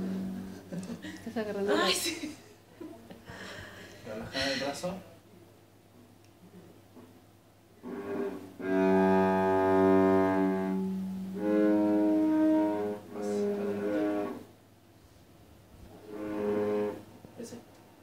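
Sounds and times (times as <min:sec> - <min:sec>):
cello bowing single notes: 0:00.0 - 0:00.7, 0:07.8 - 0:14.5, 0:16.0 - 0:17.1.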